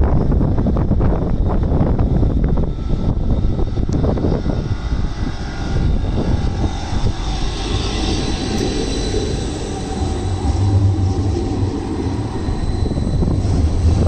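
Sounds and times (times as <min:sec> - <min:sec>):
faint electric whine: 0:00.0 - 0:14.0
tram wheels rumbling on rails: 0:00.0 - 0:14.0.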